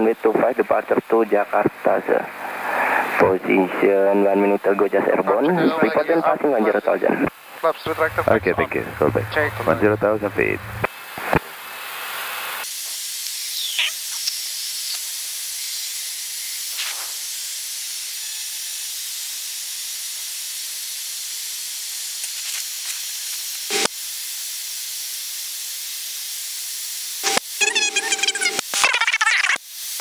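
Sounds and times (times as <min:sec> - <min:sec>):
cockpit airflow hiss: 0:01.3 - 0:13.4.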